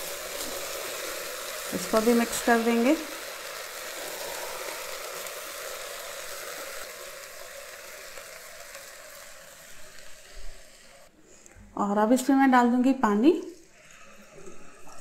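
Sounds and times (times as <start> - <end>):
food sizzling in hot oil: 0.0 - 11.1.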